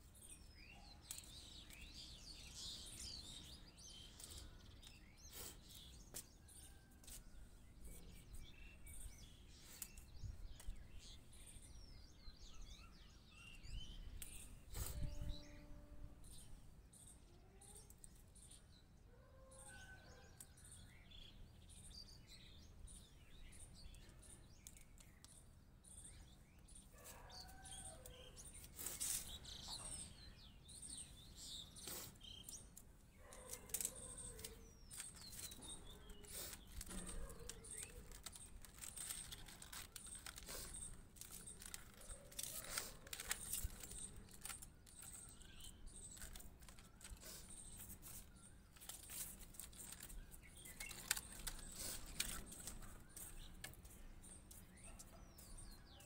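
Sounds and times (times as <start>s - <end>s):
faint birds chirping: 0.0s - 56.0s
leaves rustling: 33.5s - 53.5s.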